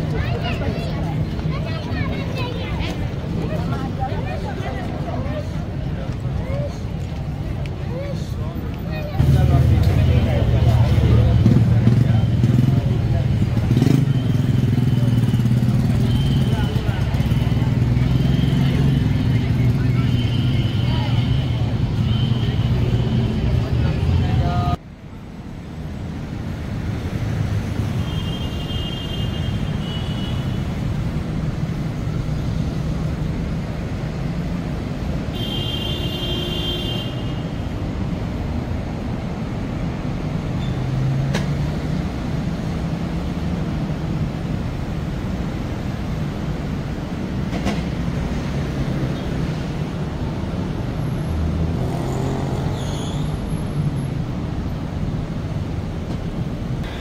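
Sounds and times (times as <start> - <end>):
traffic rumble: 0.0 - 57.0.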